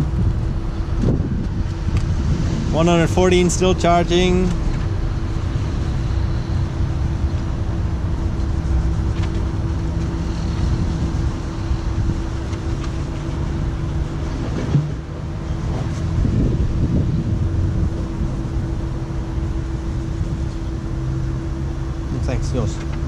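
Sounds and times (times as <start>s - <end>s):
cooling fans and pump humming: 0.0s - 23.0s
short thump: 14.5s - 15.0s.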